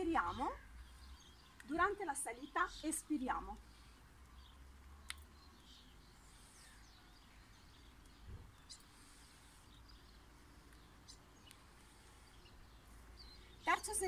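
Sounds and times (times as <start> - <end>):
faint bird chirps: 4.3 - 14.0.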